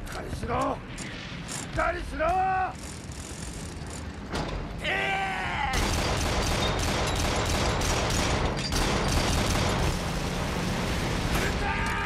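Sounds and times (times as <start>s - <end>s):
rumble of battle: 3.0s - 12.0s
man shouting: 4.8s - 5.8s, 11.4s - 12.0s
rapid anti-aircraft gunfire: 5.8s - 11.6s.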